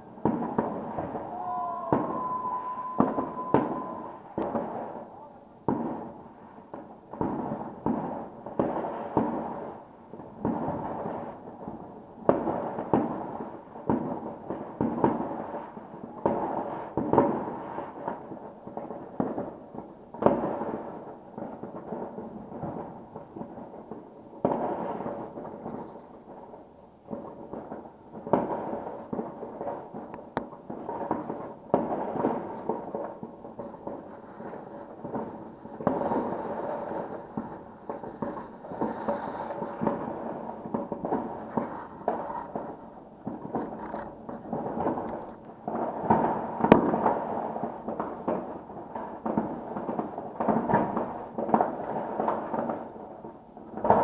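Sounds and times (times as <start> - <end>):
loud firework booms: 0.0 - 6.2, 27.1 - 52.9
fireworks bangs and crackling: 0.0 - 54.0.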